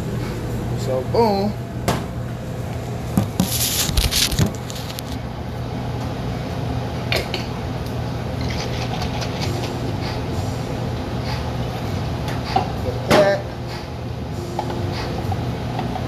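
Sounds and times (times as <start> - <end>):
exhaust hood fan humming: 0.0 - 16.0.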